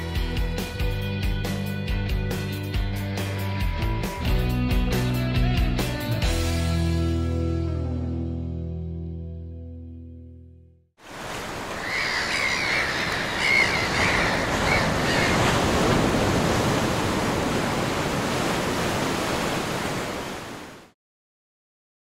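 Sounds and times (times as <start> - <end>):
ocean surf washing onto beach: 11.0 - 21.0
high wavering cries: 11.7 - 15.6.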